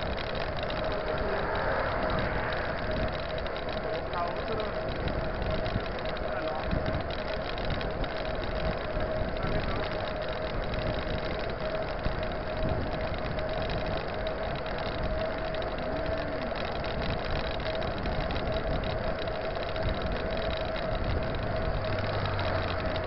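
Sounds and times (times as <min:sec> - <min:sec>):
bike tyre noise on asphalt: 0:00.0 - 0:23.0
steady mid-pitched hum: 0:00.0 - 0:23.0
wind buffeting microphone: 0:00.0 - 0:23.0.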